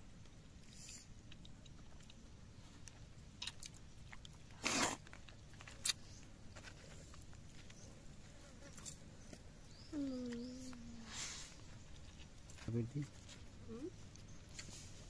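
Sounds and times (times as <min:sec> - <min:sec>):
short rustle: 0:11.0 - 0:13.4.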